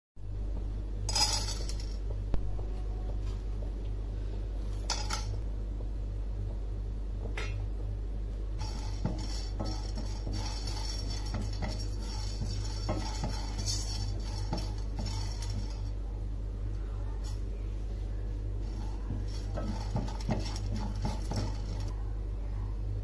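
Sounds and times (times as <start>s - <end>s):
low electrical hum: 0.2s - 23.0s
spatula scraping a pan: 8.6s - 16.0s, 18.6s - 21.9s
spices rattling in a pan: 8.6s - 16.6s, 18.5s - 21.9s.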